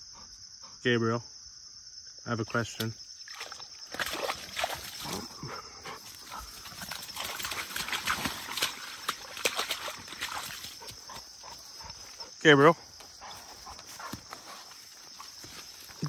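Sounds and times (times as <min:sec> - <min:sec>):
insects chirring: 0:00.0 - 0:16.0
dog splashing through mud: 0:03.2 - 0:12.3.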